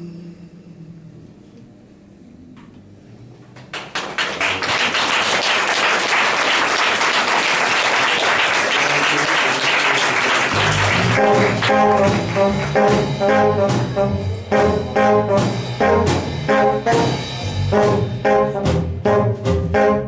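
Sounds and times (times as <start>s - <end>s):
audience applauding: 3.6s - 13.0s
brass horns: 8.7s - 20.0s.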